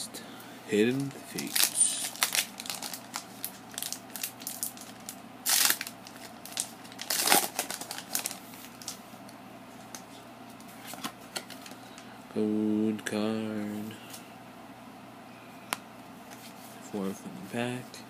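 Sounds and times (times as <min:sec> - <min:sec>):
cards rustling: 0:00.8 - 0:09.0
foil wrapper crinkling: 0:00.9 - 0:09.0
foil wrapper ripping: 0:01.0 - 0:09.0.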